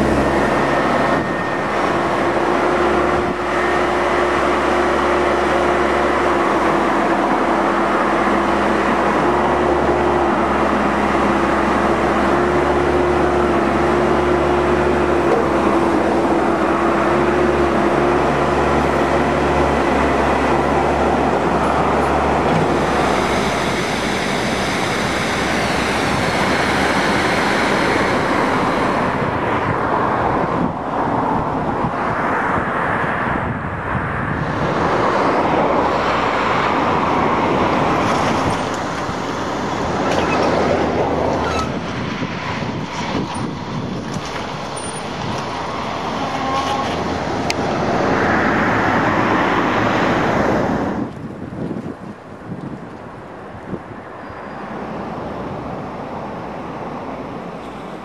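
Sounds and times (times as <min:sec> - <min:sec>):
high whine: 0:00.0 - 0:30.8
excavator engine drone: 0:00.0 - 0:58.0
rough rushing noise: 0:34.2 - 0:52.0.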